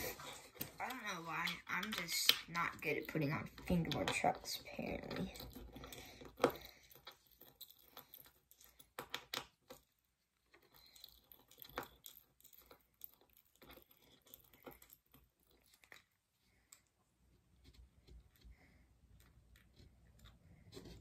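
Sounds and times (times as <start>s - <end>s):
small clicks and taps: 0.5s - 16.9s.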